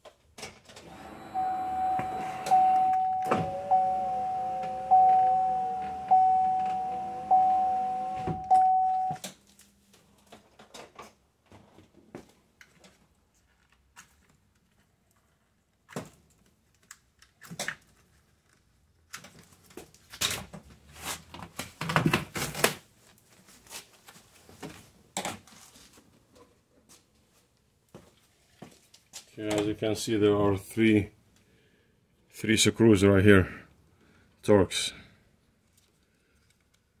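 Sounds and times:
car warning chime dinging: 0:01.0 - 0:09.2.

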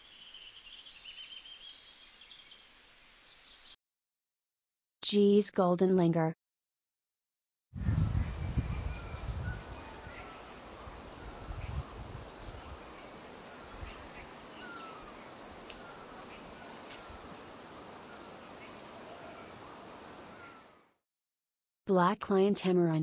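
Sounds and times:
high insect drone: 0:07.8 - 0:20.9.

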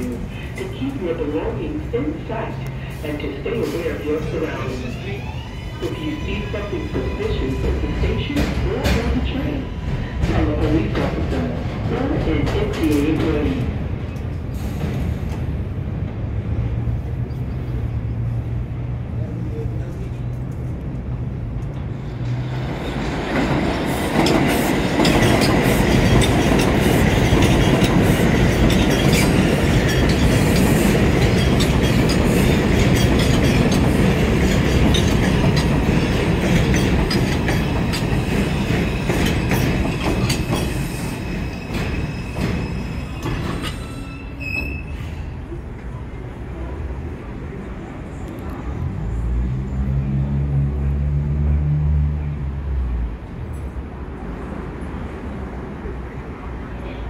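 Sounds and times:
train rumbling over elevated track: 0:00.0 - 0:57.0
wheel squeal: 0:40.3 - 0:45.2.

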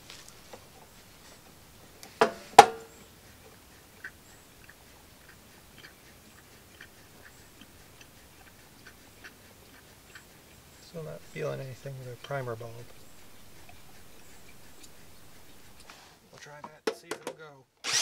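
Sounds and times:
sharp knocks: 0:02.2 - 0:02.9.

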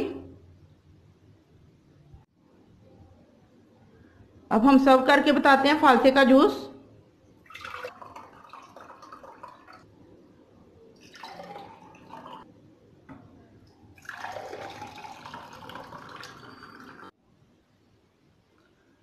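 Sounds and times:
juice pouring into glass: 0:07.4 - 0:09.9, 0:11.0 - 0:12.4, 0:14.0 - 0:17.1.

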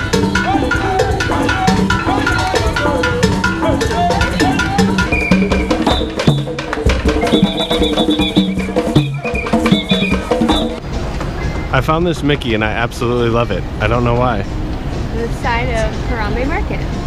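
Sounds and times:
hand drums playing fast rhythm: 0:00.0 - 0:10.8
melody: 0:00.0 - 0:11.8.

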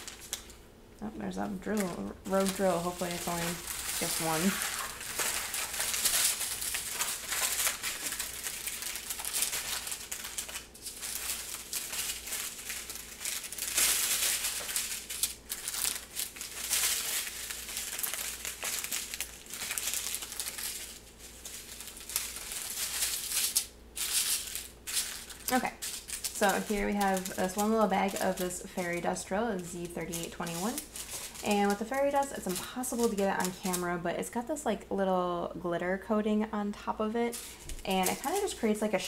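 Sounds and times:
plastic bags crinkling: 0:00.0 - 0:00.6, 0:01.2 - 0:34.5, 0:37.2 - 0:39.0.

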